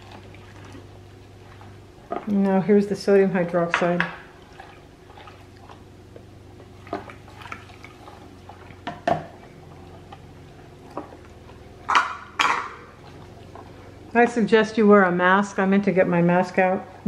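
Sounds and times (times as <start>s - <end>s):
spatula stirring in plastic container: 3.8s - 9.0s.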